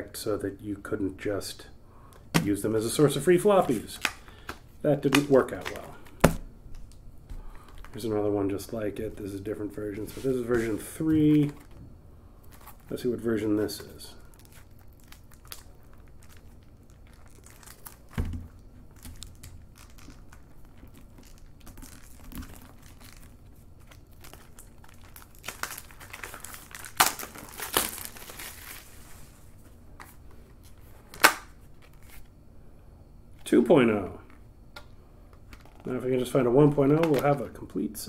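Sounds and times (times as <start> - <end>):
paper wrapping crinkling and tearing: 2.8 - 6.2, 12.4 - 29.4.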